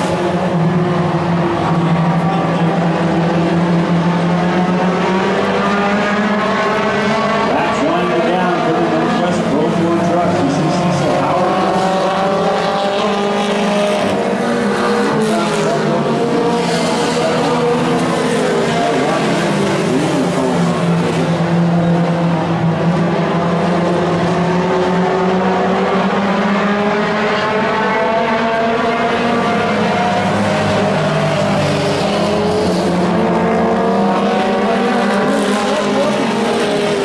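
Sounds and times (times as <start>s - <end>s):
race truck engines running hard: 0.0s - 37.0s.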